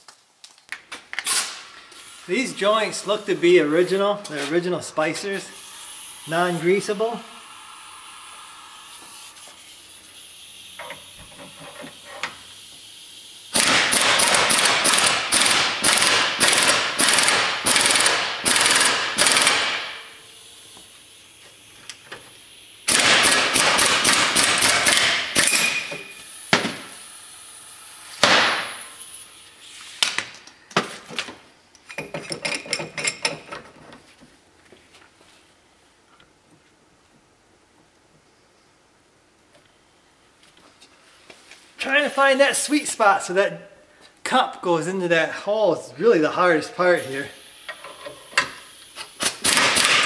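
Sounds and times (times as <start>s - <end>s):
air impact wrench hammering: 13.5s - 20.2s, 22.8s - 27.0s, 28.1s - 29.0s, 47.7s - 50.0s.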